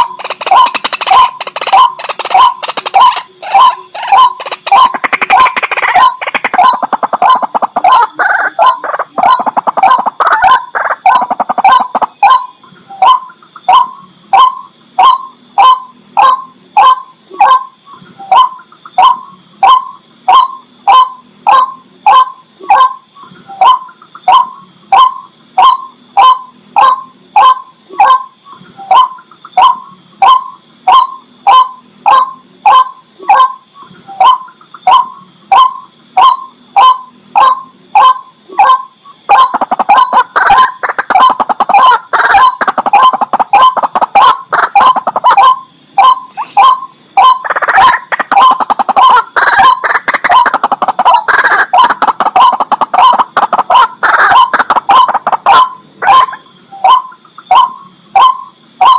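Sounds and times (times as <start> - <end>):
waterhen calling: 0.0 - 17.6, 34.2 - 58.9.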